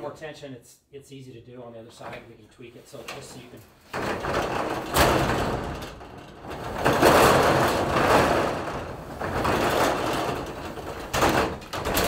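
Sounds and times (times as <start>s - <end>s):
metal roll-up door rattling: 3.2s - 12.0s.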